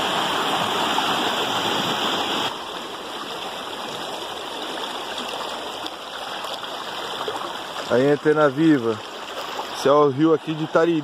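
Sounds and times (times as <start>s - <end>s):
river rushing over rocks: 0.0s - 8.5s.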